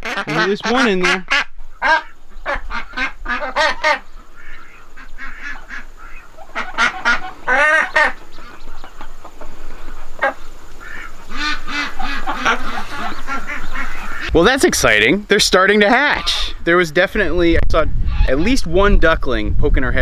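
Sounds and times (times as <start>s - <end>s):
ducks quacking: 0.0s - 16.8s, 18.0s - 18.7s.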